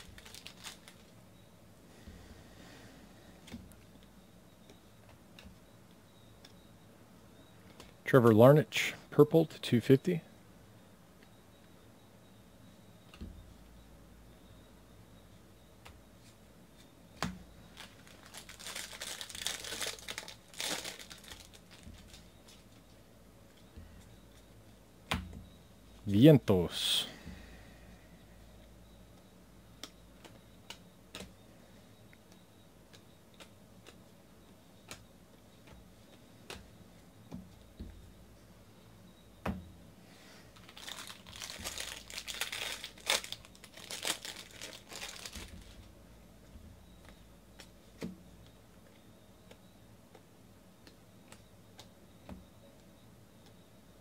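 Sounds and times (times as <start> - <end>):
plastic wrapper crinkling and tearing: 0.0 - 1.1, 17.8 - 22.6, 40.6 - 45.8.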